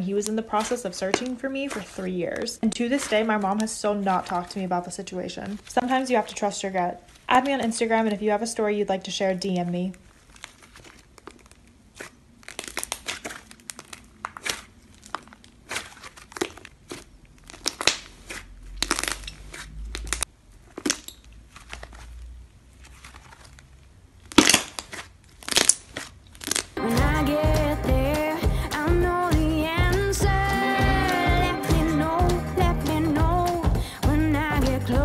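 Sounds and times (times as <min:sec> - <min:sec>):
slime squeezed by hand: 0:10.1 - 0:22.2.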